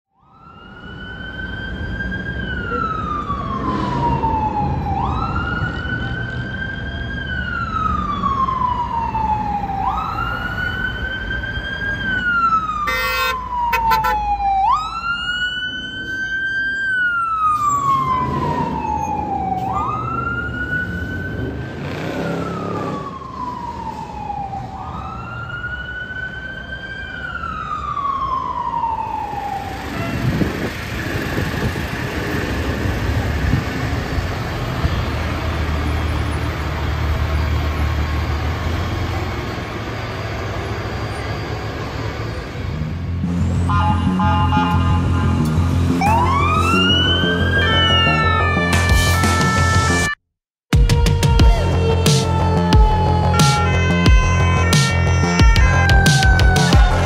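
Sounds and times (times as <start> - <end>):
fire engine siren wailing: 0.1 - 57.0
pulsing siren burst: 0.2 - 30.4, 44.4 - 57.0.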